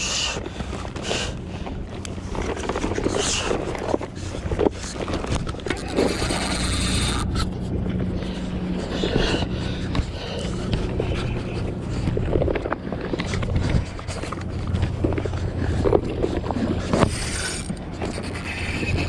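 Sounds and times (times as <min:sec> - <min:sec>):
steady low hum: 0:00.0 - 0:19.0
wind: 0:00.0 - 0:19.0
cloth rubbing on microphone: 0:16.9 - 0:19.0.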